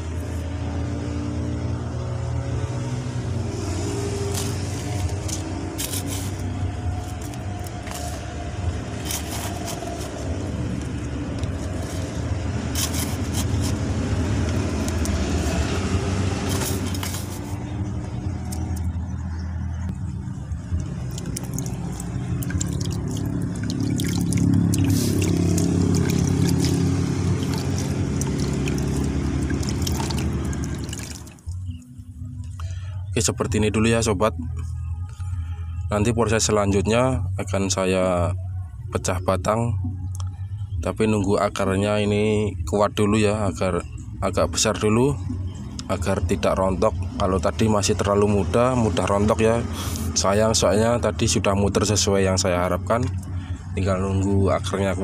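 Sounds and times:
low droning hum: 0:03.2 - 0:33.3, 0:34.3 - 0:36.1
potting mix poured into plastic pot: 0:21.1 - 0:31.4.

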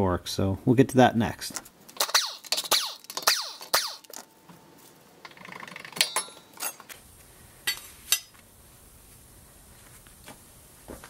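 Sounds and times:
metal rattling and clinking: 0:05.3 - 0:06.9
sharp metallic clanks: 0:06.0 - 0:06.9.

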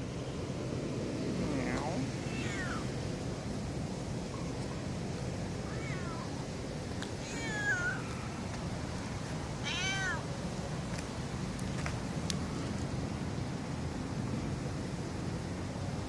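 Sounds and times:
cat meowing: 0:01.7 - 0:02.9, 0:05.6 - 0:06.4, 0:07.2 - 0:08.0, 0:09.6 - 0:10.3.

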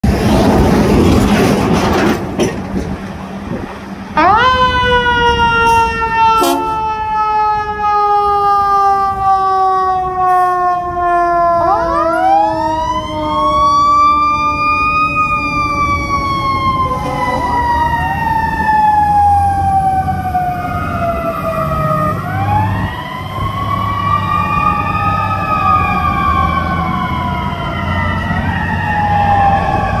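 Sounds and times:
diesel engines rumbling: 0:00.0 - 0:30.0
mechanical sirens winding up and down: 0:04.1 - 0:30.0.

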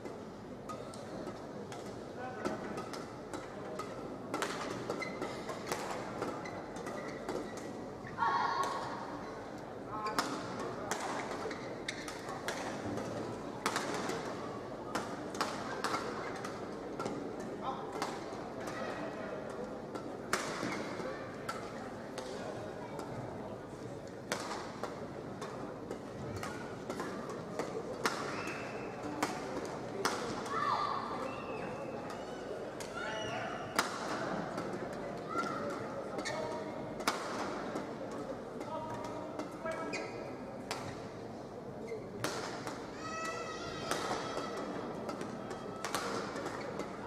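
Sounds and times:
arena crowd noise: 0:00.0 - 0:47.0
large hall hum: 0:00.0 - 0:47.0
rackets hitting shuttlecock: 0:00.6 - 0:07.8, 0:10.1 - 0:22.4, 0:24.3 - 0:30.5, 0:33.7 - 0:40.0, 0:42.2 - 0:47.0
badminton rackets striking shuttlecock: 0:01.7 - 0:07.7, 0:33.8 - 0:34.9, 0:37.0 - 0:38.2, 0:42.2 - 0:47.0
court shoe squeak: 0:05.0 - 0:05.3.

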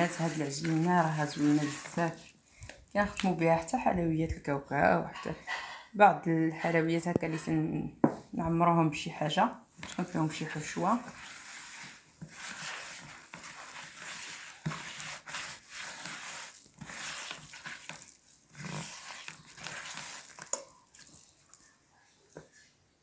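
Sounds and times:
hands rubbing dough in bowl: 0:00.0 - 0:04.6, 0:09.8 - 0:21.6.

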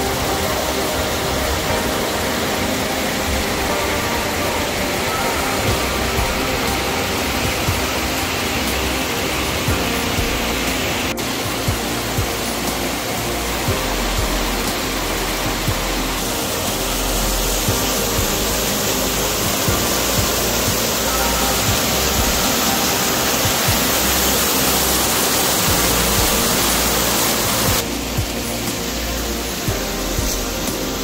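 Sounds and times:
water pouring over rocks: 0:00.0 - 0:31.0.

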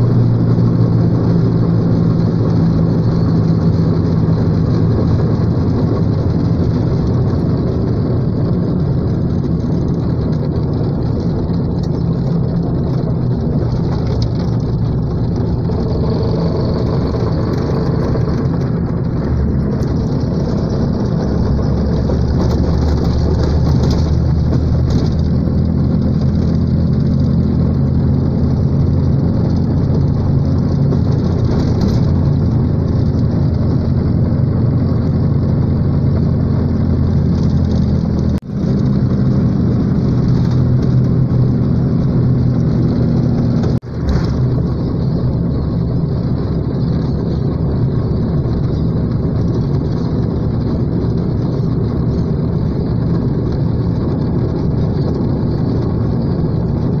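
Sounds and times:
vehicle engine from inside cabin: 0:00.0 - 0:57.0.

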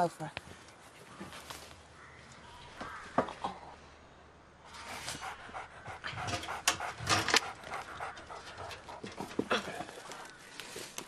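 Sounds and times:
dog panting: 0:04.9 - 0:10.2
sharp snaps and rustling: 0:06.2 - 0:11.0.

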